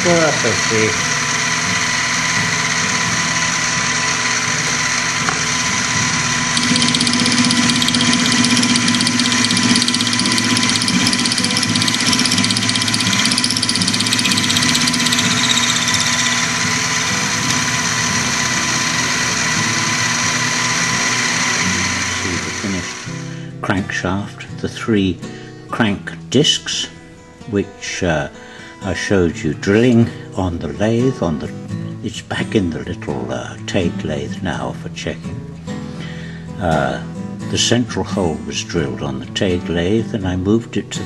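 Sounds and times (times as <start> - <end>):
end mill grinding steel: 0.0 - 23.1
milling machine motor whine: 0.0 - 23.3.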